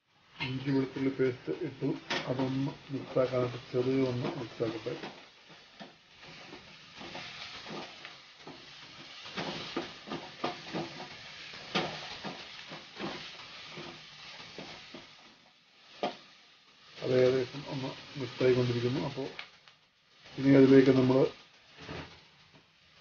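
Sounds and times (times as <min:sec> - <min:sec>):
onions sizzling in oil: 0:00.0 - 0:23.0
spatula scraping and tapping pan: 0:03.6 - 0:15.2.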